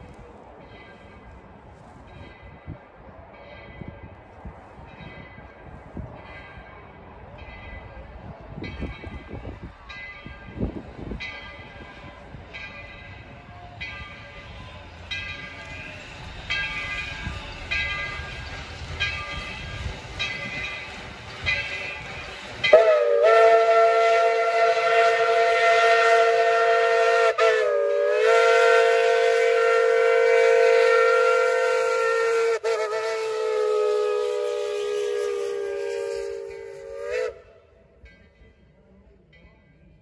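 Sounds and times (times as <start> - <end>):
locomotive bell ringing: 0.6 - 25.6
steam whistle blast: 22.4 - 37.7.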